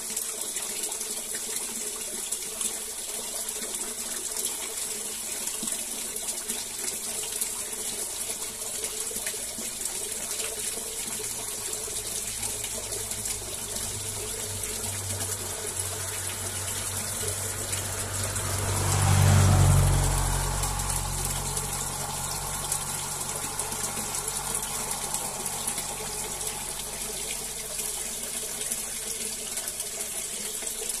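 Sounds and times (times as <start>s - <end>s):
watery hiss: 11.2s - 29.4s
low rumble: 13.5s - 28.0s.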